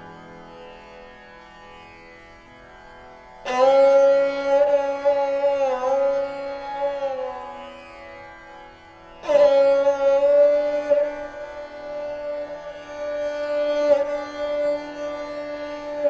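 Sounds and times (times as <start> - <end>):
plucked string instrument: 9.2 - 16.0.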